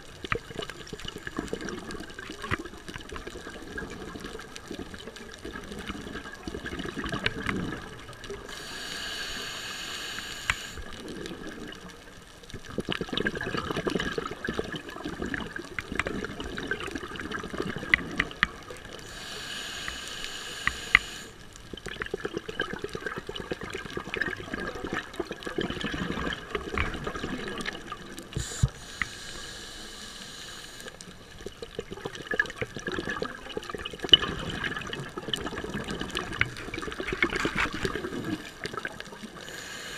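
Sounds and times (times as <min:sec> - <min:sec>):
sharp clicks and crackles: 0:00.0 - 0:08.6, 0:10.0 - 0:29.4, 0:30.8 - 0:39.4
exhaled air bubbling: 0:00.0 - 0:39.9
regulator hissing inhale: 0:08.4 - 0:10.9, 0:19.0 - 0:21.4, 0:28.3 - 0:31.2, 0:39.4 - 0:39.9.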